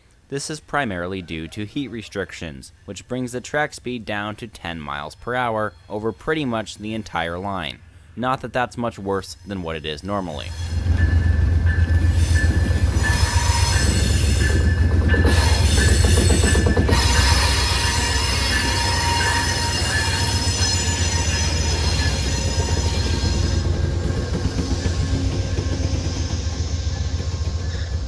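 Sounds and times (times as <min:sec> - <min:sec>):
diesel locomotive engine rumbling: 0:09.3 - 0:28.0
train wheel squeal: 0:10.3 - 0:28.0.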